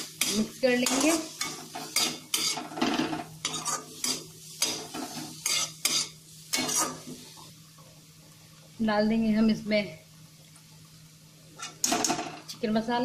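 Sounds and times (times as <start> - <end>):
metal ladle scraping a pan: 0.0 - 7.1
light sizzle: 0.0 - 13.0.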